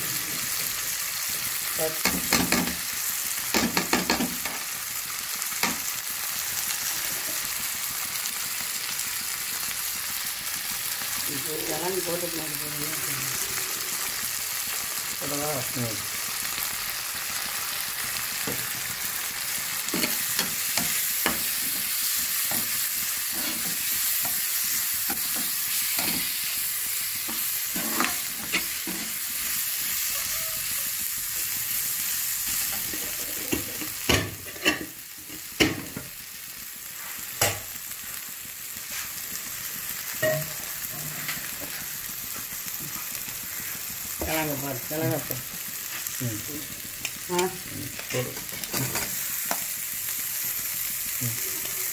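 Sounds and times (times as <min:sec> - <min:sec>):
vegetables sizzling in oil: 0:00.0 - 0:51.9
spatula knocking and scraping pan: 0:03.5 - 0:04.6, 0:27.3 - 0:29.1.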